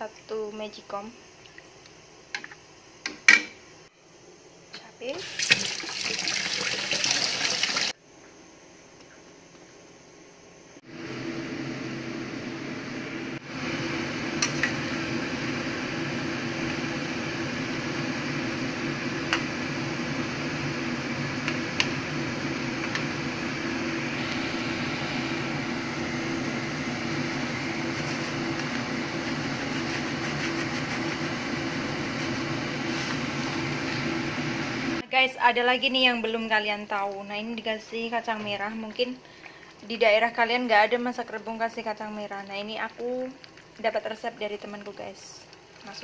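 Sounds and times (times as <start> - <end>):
mechanical hum and hiss: 0.0 - 6.7, 7.6 - 17.0, 20.4 - 35.0.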